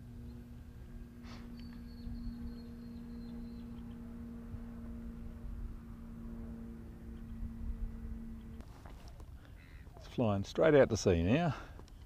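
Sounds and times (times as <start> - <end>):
steady hum: 0.0 - 12.0
wind rumble on microphone: 1.6 - 9.4.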